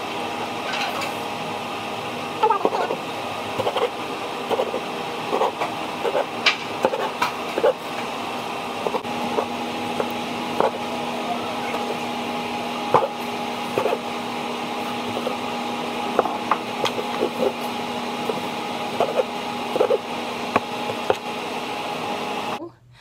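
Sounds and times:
steady hum: 0.0s - 23.0s
knife chopping on cutting board: 4.5s - 7.8s, 10.6s - 10.8s, 19.0s - 21.3s.

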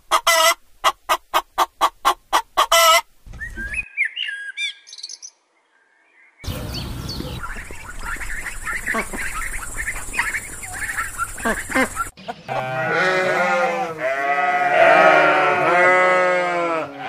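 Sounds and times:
geese chirping calls: 6.4s - 14.0s
sheep bleating: 12.5s - 17.0s.

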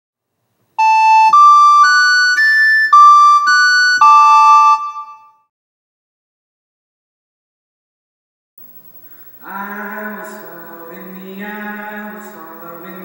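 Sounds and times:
keyboard jingle: 0.8s - 5.4s, 9.4s - 13.0s.

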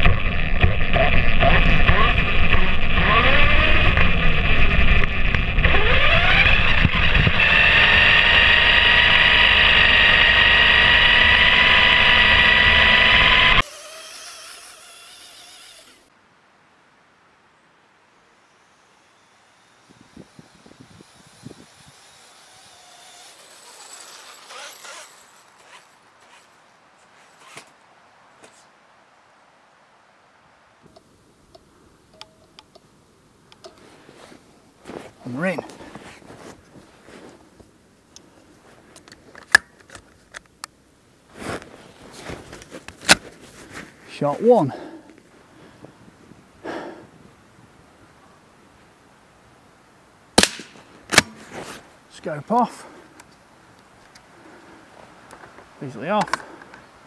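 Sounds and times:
toy car motor whine: 0.8s - 16.1s, 18.6s - 26.5s.

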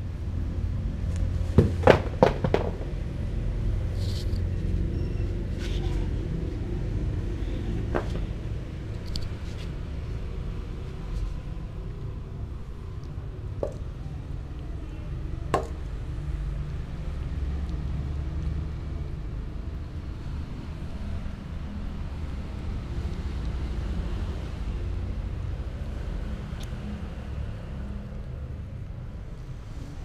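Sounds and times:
steady low rumble: 0.0s - 17.2s
knocks on a plastic plate: 1.6s - 3.0s.

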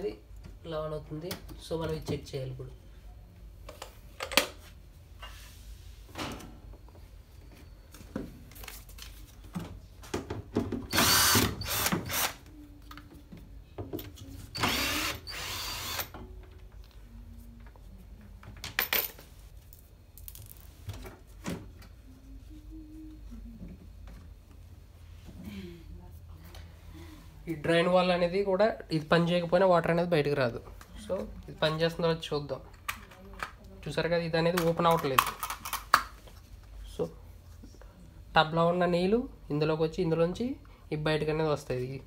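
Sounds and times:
cordless drill running: 10.9s - 12.4s, 14.6s - 16.1s.

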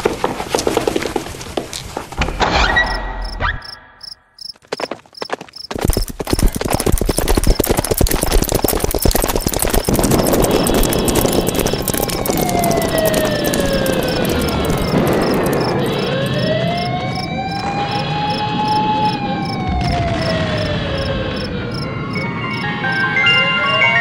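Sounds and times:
crickets chirping: 3.2s - 23.1s
siren-like wail: 10.1s - 24.0s.

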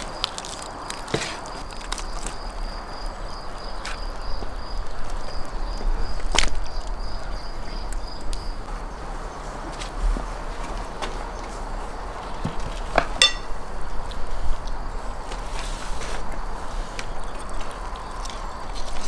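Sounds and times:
insect chirping: 0.0s - 9.0s, 11.9s - 15.3s.

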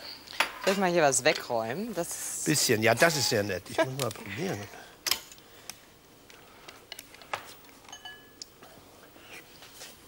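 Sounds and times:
spoon clinking on pot and plates: 7.9s - 8.4s.

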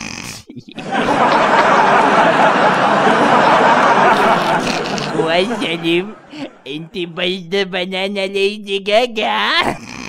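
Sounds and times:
loud sustained laughter: 0.6s - 6.9s.

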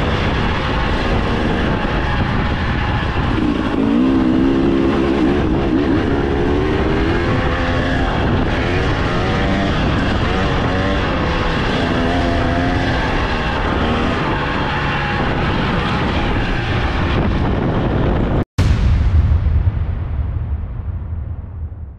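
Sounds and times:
dirt bike engine revving: 0.0s - 16.5s
constant rushing noise: 0.0s - 18.8s.

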